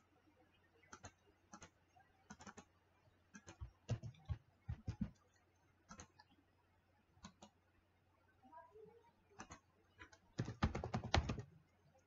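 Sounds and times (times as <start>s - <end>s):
keyboard key presses: 0.8s - 2.7s, 3.3s - 6.3s, 9.4s - 11.5s
computer mouse clicks: 0.8s - 6.4s, 7.2s - 7.6s, 9.4s - 11.5s.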